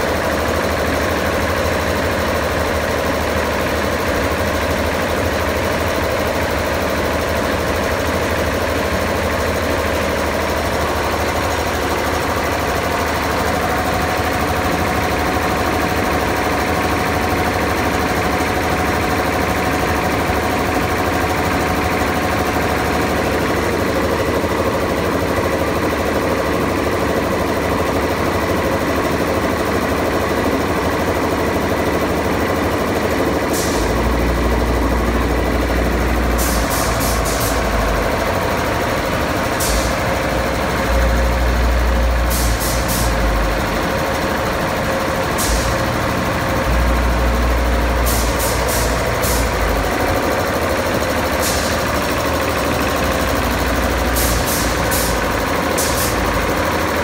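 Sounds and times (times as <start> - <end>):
compressor hum and clatter: 0.0 - 57.0
heavy low rumbles: 33.8 - 56.6.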